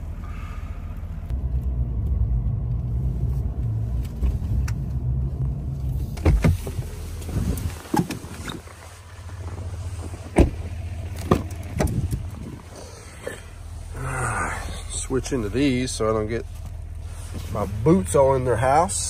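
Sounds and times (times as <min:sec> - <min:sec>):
pickup truck rumble: 0:00.0 - 0:19.0
sharp clicks and clunks: 0:10.3 - 0:12.5.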